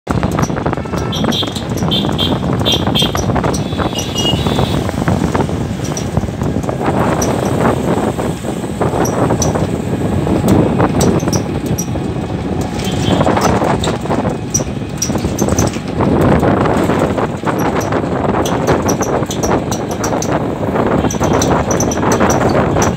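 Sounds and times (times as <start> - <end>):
road noise: 0.0 - 22.9
rushing wind: 0.0 - 22.9
light clicks and rattles: 5.2 - 7.6, 10.4 - 22.9.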